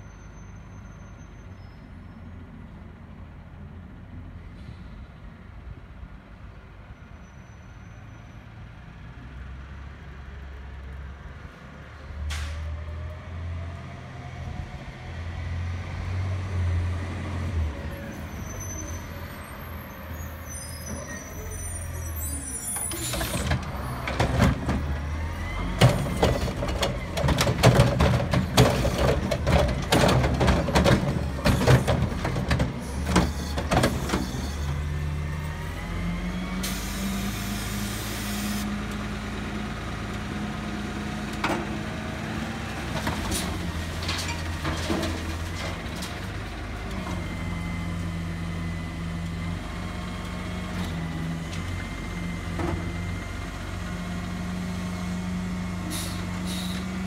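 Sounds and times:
garbage truck diesel engine: 0.0s - 57.0s
metal clanks and rattles: 25.7s - 34.2s, 43.0s - 46.3s
air brake hiss: 36.6s - 38.7s, 55.9s - 56.9s.

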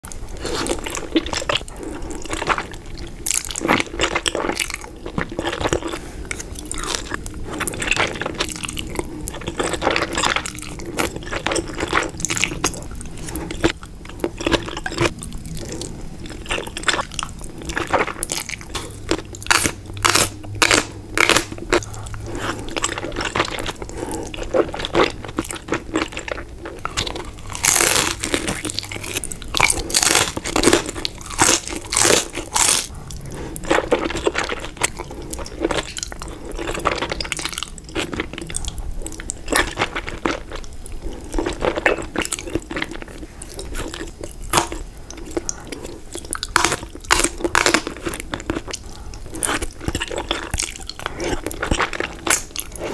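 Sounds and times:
crunching fried dumplings: 0.0s - 52.9s.

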